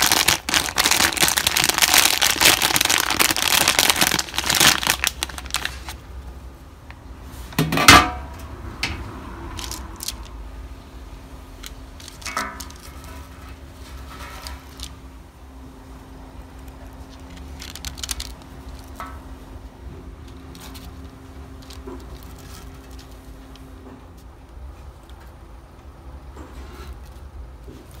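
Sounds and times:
plastic bag crinkling: 0:00.0 - 0:06.1, 0:09.5 - 0:10.4, 0:11.6 - 0:15.0, 0:16.6 - 0:19.0, 0:20.2 - 0:23.6.

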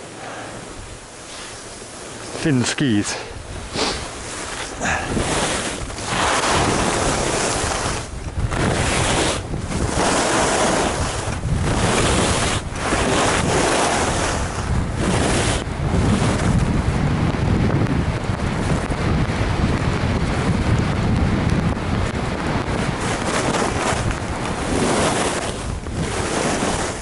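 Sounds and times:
wind rushing over microphone: 0:00.6 - 0:27.0
skis running on snow: 0:03.7 - 0:16.8, 0:18.5 - 0:27.0.

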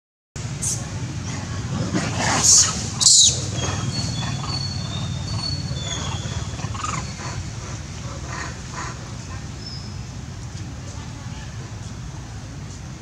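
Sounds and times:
low background rumble: 0:00.4 - 0:13.0
macaques screeching: 0:02.0 - 0:09.8.

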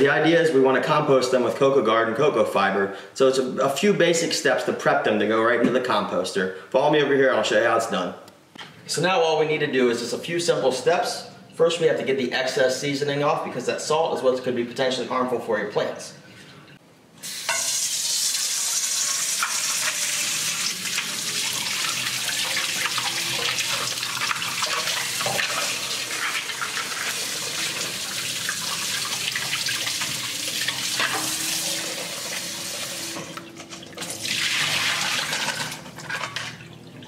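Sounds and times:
faucet running into metal bowl: 0:17.2 - 0:36.7.

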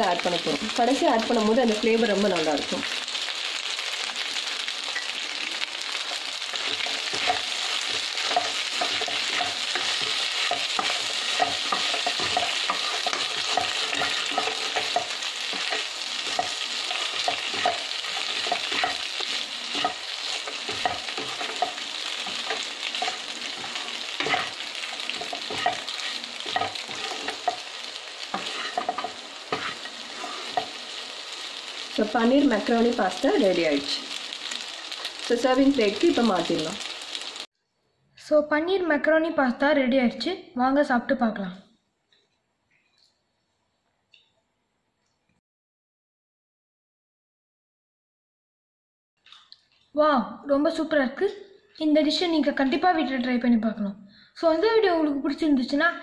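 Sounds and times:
frying sizzle: 0:00.0 - 0:37.5
wooden spoon scraping pan: 0:06.5 - 0:31.0.

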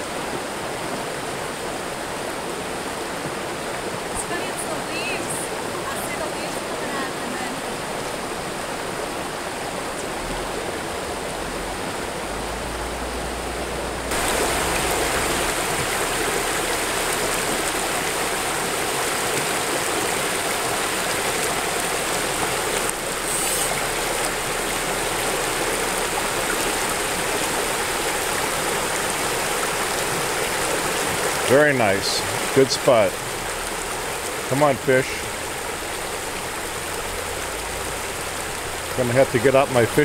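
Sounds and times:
river water rushing over rocks: 0:00.0 - 0:40.0.

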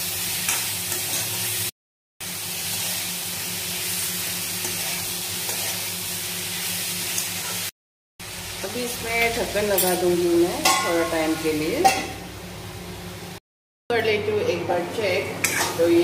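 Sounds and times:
vegetables sizzling in hot oil: 0:00.0 - 0:13.4
metal spoon scraping pan: 0:15.4 - 0:15.9.

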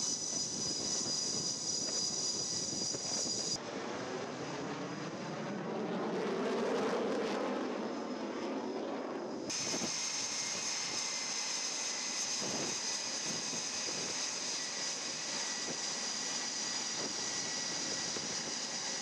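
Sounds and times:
fighter jet passing overhead: 0:00.0 - 0:19.0
jet engines whining: 0:00.0 - 0:19.0.

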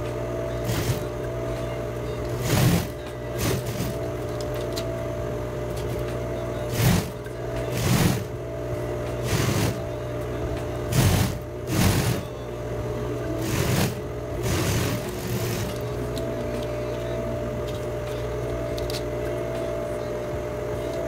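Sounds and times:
sewing machine running: 0:00.0 - 0:01.1, 0:02.3 - 0:04.1, 0:06.6 - 0:08.4, 0:09.2 - 0:10.0, 0:10.9 - 0:12.3, 0:13.3 - 0:16.1.

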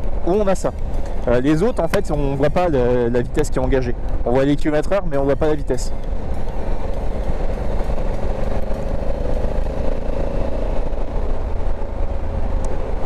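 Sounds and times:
wind and road noise: 0:00.0 - 0:13.0
motorcycle engine running: 0:04.0 - 0:13.0.

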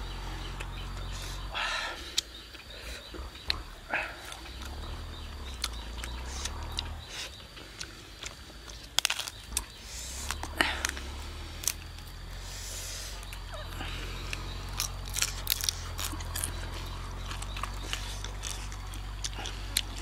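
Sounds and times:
roasted duck skin crackling: 0:14.7 - 0:19.9.

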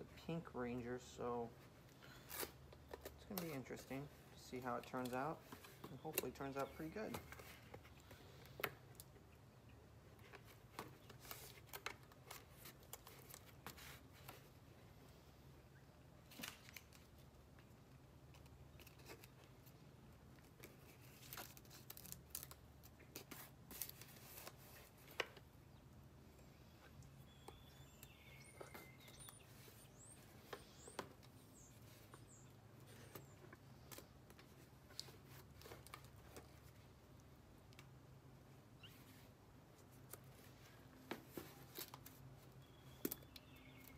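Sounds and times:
tape being handled: 0:01.5 - 0:09.3, 0:10.1 - 0:14.7, 0:16.2 - 0:25.6, 0:26.8 - 0:38.0, 0:38.8 - 0:43.9.

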